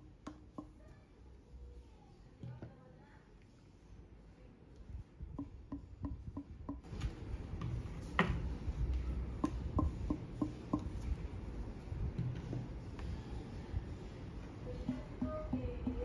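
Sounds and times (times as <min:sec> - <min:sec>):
knuckle knocking on wooden blades: 0:09.4 - 0:11.0.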